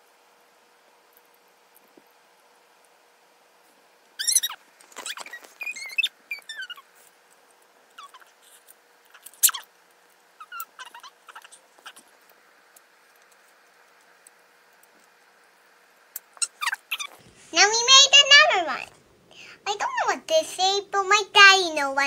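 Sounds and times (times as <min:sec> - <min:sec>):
child squeaking and screeching: 0:04.2 - 0:06.9, 0:08.0 - 0:08.4, 0:09.4 - 0:09.7, 0:10.4 - 0:12.0, 0:16.4 - 0:17.7.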